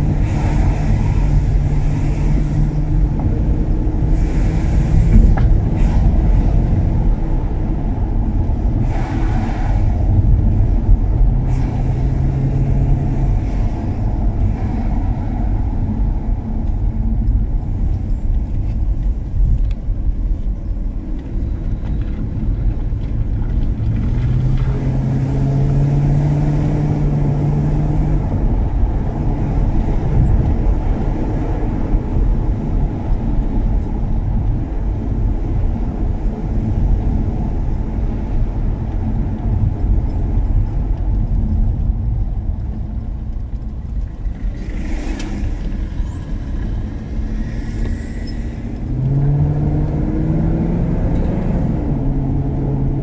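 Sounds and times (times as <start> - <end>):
road rumble: 0.0 - 53.0.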